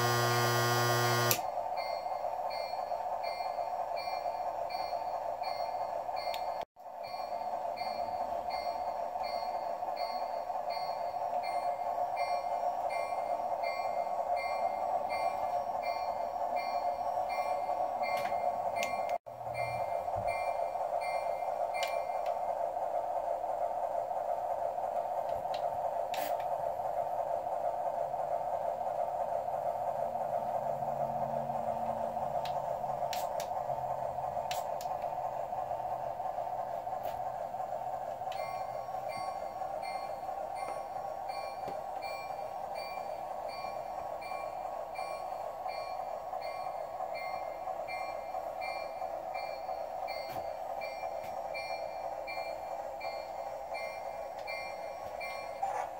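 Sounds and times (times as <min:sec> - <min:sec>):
electronic drone: 0:00.0 - 0:01.4
high bell dings: 0:38.3 - 0:55.9.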